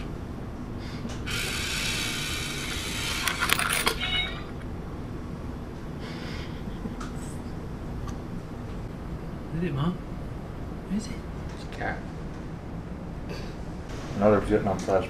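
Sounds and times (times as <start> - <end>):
small toy motor whirring: 1.2 - 4.4.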